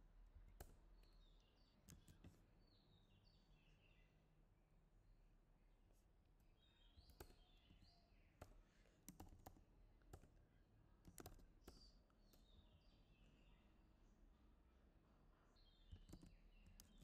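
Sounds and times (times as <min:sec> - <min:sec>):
keyboard typing: 0:01.8 - 0:02.4, 0:08.4 - 0:10.4, 0:11.0 - 0:12.4, 0:15.9 - 0:17.0.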